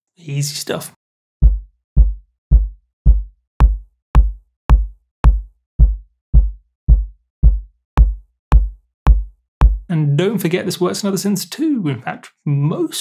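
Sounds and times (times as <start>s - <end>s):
electronic kick drum thuds: 1.4s - 9.9s.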